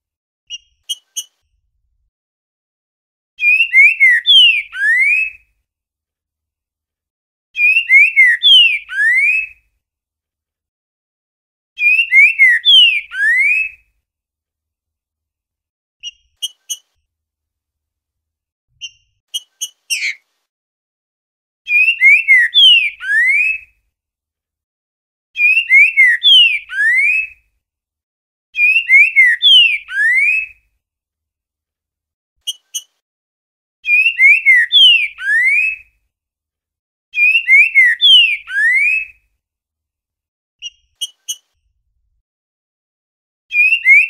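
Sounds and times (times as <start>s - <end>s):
bird singing whistled phrases: 3.4s - 5.4s, 7.6s - 9.6s, 11.8s - 13.8s, 21.7s - 23.7s, 25.4s - 27.4s, 28.6s - 30.6s, 33.8s - 35.8s, 37.2s - 39.1s, 43.5s - 44.0s.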